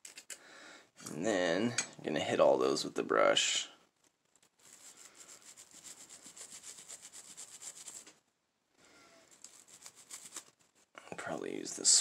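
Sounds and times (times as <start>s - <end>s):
brush scrubbing metal: 4.6s - 8.1s, 9.4s - 10.6s.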